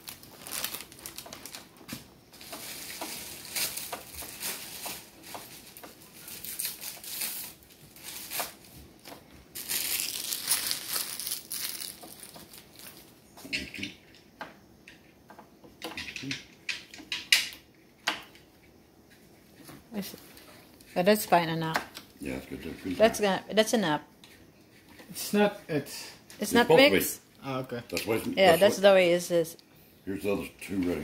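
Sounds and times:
plastic packaging crinkling: 0.0s - 13.2s.

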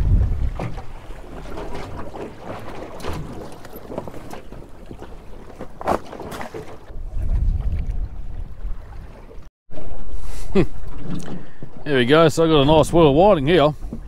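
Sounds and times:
wind buffeting microphone: 0.0s - 5.0s, 6.8s - 9.5s
water splashing against boat hull: 0.0s - 14.0s.

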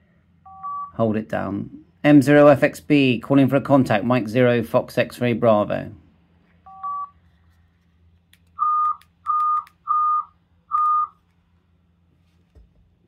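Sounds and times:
faint electrical hum: 0.0s - 13.0s
steady electronic beeps: 8.6s - 11.1s.

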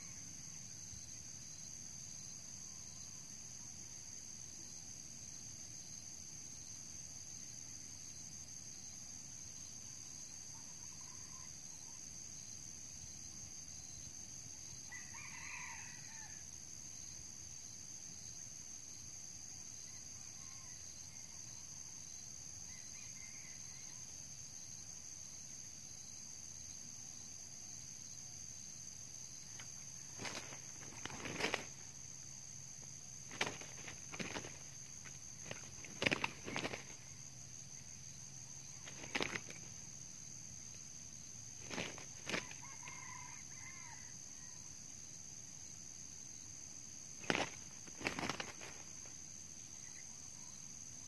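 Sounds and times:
insects droning: 0.0s - 51.0s
rooster crowing: 14.9s - 16.4s, 42.4s - 44.6s.

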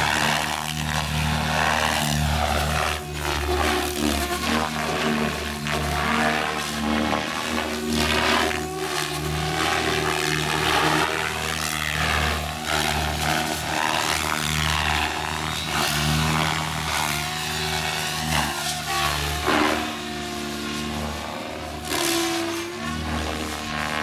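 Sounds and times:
rc helicopter rotor drone: 0.0s - 24.0s.

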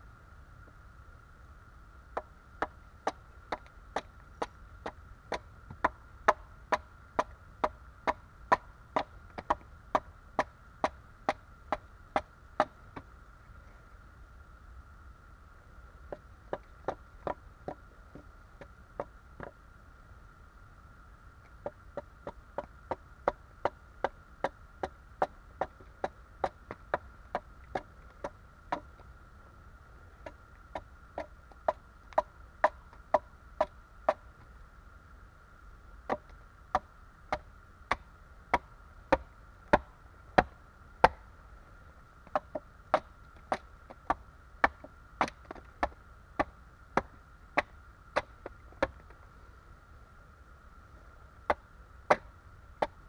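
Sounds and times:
axe chopping wood: 2.2s - 13.0s, 25.6s - 28.9s, 36.1s - 41.2s, 42.2s - 49.0s, 51.5s - 53.0s.

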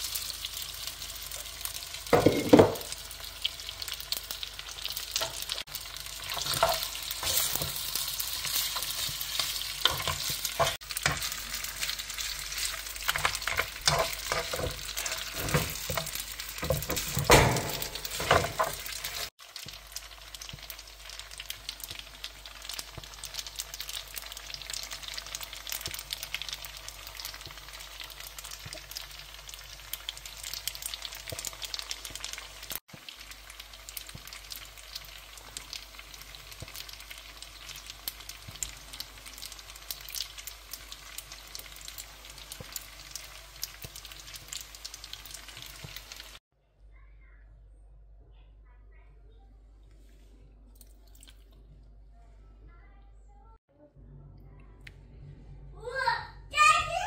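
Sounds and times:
food sizzling in a frying pan: 0.0s - 46.4s
tongs scraping and clacking on pan: 5.1s - 19.3s.

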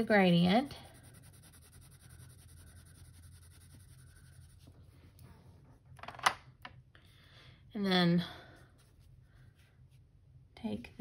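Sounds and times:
pencil scratching on paper: 0.0s - 5.6s.

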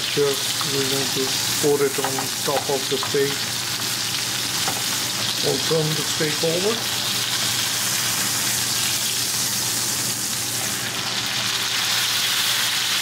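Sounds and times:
steak sizzling in a pan: 0.0s - 13.0s.

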